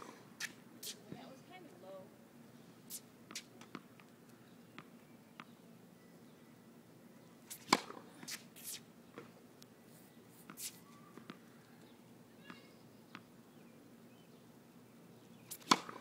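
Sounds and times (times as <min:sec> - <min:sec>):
tennis ball bouncing on hard court: 0:07.5 - 0:08.0, 0:15.5 - 0:16.0
tennis racket hitting ball: 0:07.5 - 0:08.0, 0:15.5 - 0:16.0.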